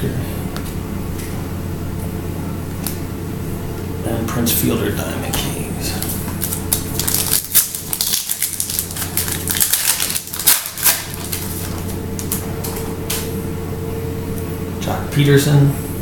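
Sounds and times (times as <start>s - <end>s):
steady low hum: 0.0s - 16.0s
cards being shuffled by hand: 5.9s - 12.9s.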